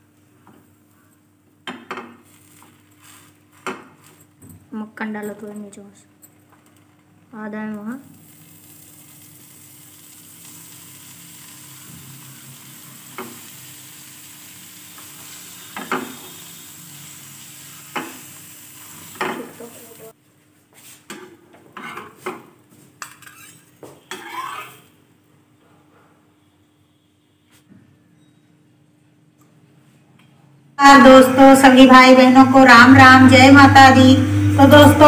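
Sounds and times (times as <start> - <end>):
butter sizzling in a frying pan: 8.0 - 20.2
metal spatula scraping and clattering: 23.0 - 24.8.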